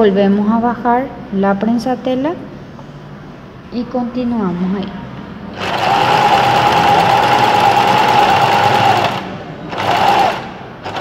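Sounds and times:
sewing machine motor whining: 5.6 - 11.0.

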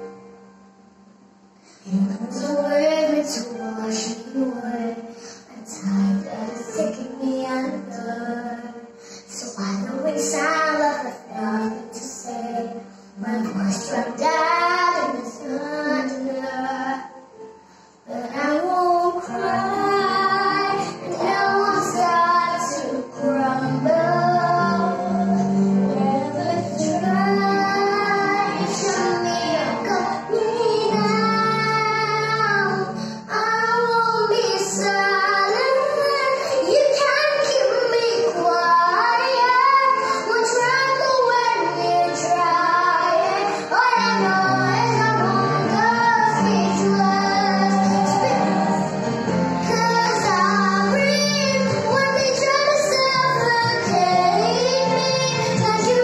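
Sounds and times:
girl singing: 1.9 - 17.4, 18.1 - 48.9, 49.6 - 56.0.

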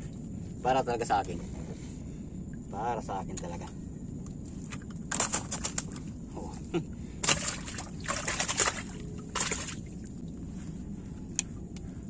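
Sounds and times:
water splashing and dripping: 7.2 - 10.4.

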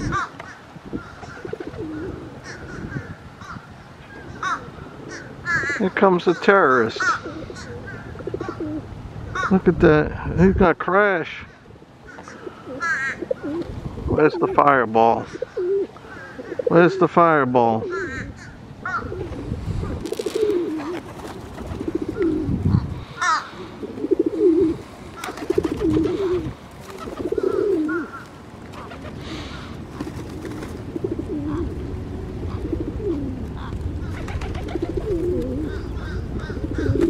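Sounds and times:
pigeons cooing: 0.0 - 9.6, 11.4 - 17.2, 17.8 - 37.0
higher bird call: 22.7 - 26.5.

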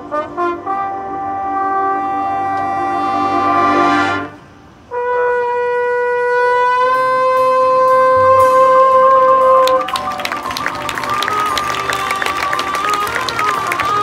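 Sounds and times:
marching band brass playing: 0.0 - 14.0.

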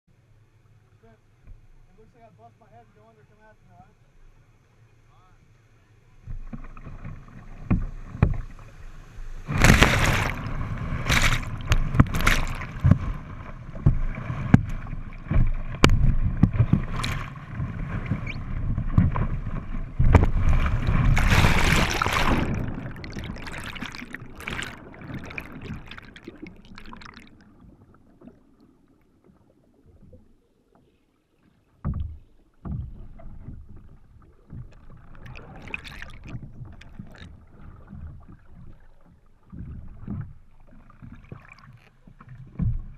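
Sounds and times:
muffled underwater sound: 0.8 - 42.9
white water rushing and splashing: 6.9 - 28.2
short thump: 9.5 - 13.2, 13.8 - 17.3, 18.1 - 22.8.

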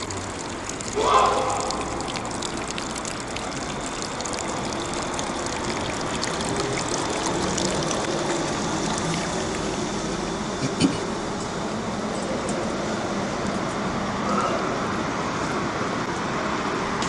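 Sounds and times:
fountain water splashing: 0.0 - 10.2.

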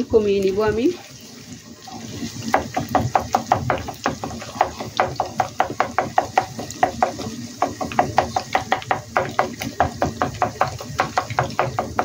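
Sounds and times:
wooden spatula tapping a wok: 2.5 - 12.0.

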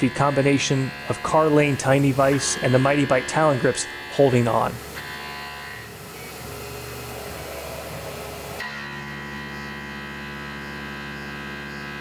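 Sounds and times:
milling machine cutting metal: 0.0 - 11.8.

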